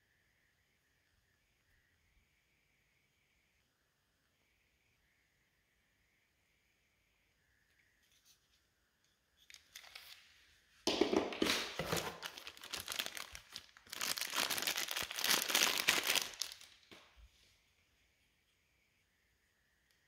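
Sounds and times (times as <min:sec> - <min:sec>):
packaging crinkling: 0:09.4 - 0:10.2, 0:10.9 - 0:17.0.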